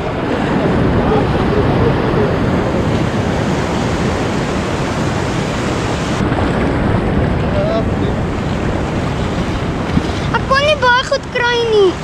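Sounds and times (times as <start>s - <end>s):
surf washing in shallow water: 0.0s - 12.0s
wind buffeting microphone: 0.0s - 12.0s.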